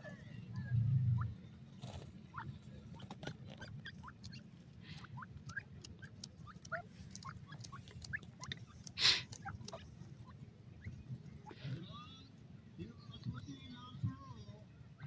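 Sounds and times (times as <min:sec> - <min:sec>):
birds peeping: 0:00.0 - 0:15.0
low steady hum: 0:00.0 - 0:15.0
faint clicks: 0:05.0 - 0:09.9.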